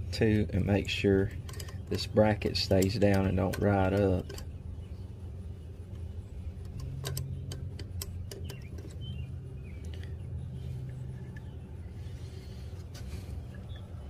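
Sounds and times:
steady low hum: 0:00.0 - 0:14.0
wrench clicking on bolts: 0:00.8 - 0:04.6, 0:06.6 - 0:09.0.

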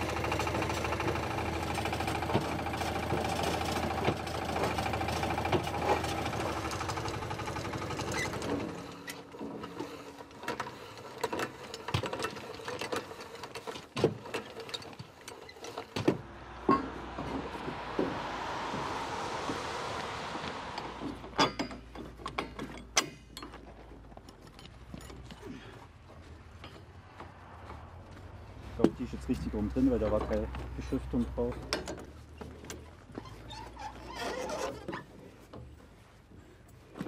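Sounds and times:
chain hoist rattling: 0:01.7 - 0:16.0
metallic clinks and knocks: 0:21.4 - 0:25.5.

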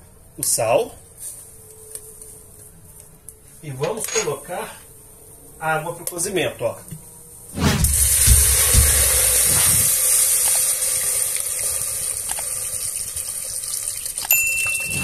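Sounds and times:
water pouring into a pot: 0:09.8 - 0:15.0.

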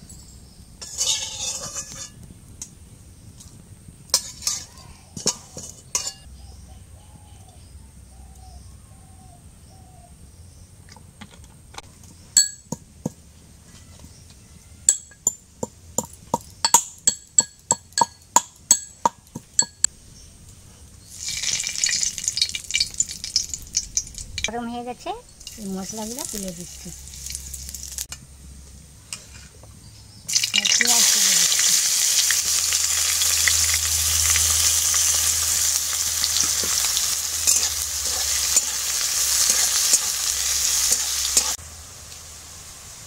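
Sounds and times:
metal utensils clinking on a pan: 0:00.8 - 0:02.2, 0:04.1 - 0:06.3, 0:12.4 - 0:12.8, 0:16.6 - 0:19.9, 0:25.3 - 0:28.1, 0:30.3 - 0:31.5, 0:36.2 - 0:41.6
hot oil sizzling: 0:00.8 - 0:06.3, 0:21.0 - 0:28.2, 0:30.3 - 0:43.0.

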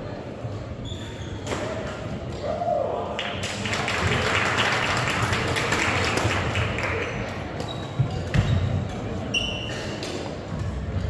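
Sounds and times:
shoes squeaking on court: 0:07.0 - 0:10.3.

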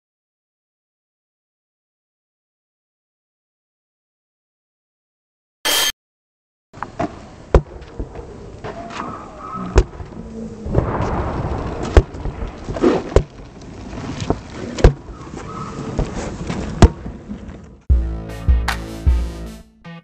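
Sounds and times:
skateboard wheels rolling: 0:06.8 - 0:17.8.

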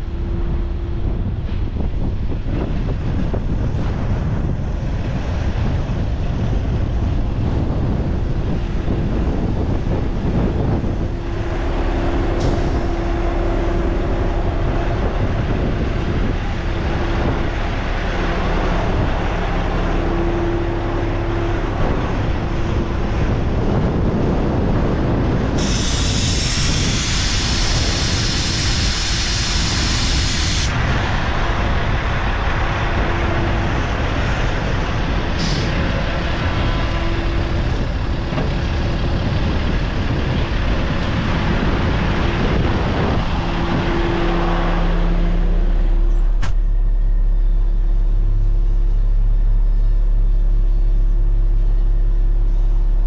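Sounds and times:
diesel engine idling: 0:00.0 - 0:53.0
compressed air hissing: 0:25.6 - 0:30.8.

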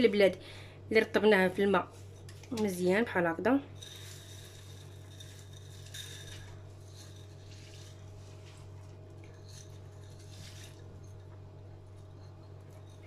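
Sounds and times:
steady low hum: 0:00.0 - 0:13.0
lentils pattering onto onions: 0:03.7 - 0:13.0.

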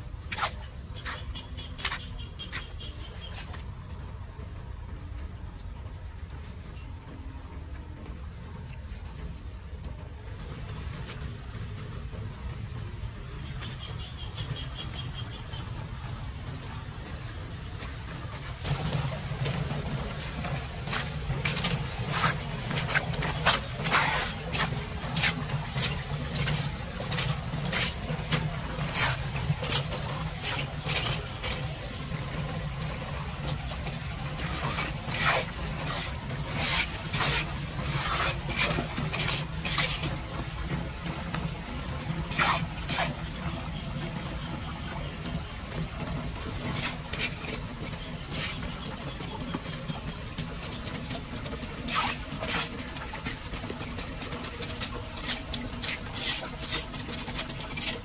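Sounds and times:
water running into drain: 0:15.9 - 0:58.0
rake scraping metal grate: 0:18.1 - 0:58.0.

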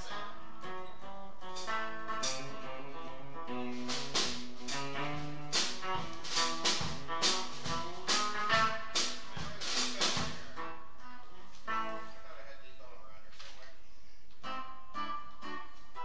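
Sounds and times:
plucked guitar notes: 0:00.0 - 0:12.2, 0:14.4 - 0:16.0
sharp percussion hits: 0:03.8 - 0:10.5.

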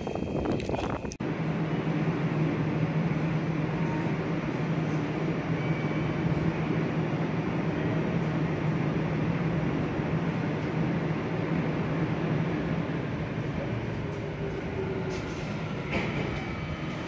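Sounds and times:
electric trains humming: 0:00.0 - 0:17.0.

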